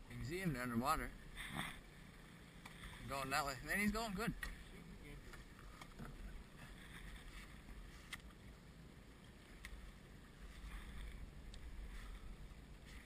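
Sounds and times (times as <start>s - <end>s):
water lapping against boat hull: 0.0s - 13.0s
faint clicks: 8.0s - 8.4s, 9.5s - 9.8s.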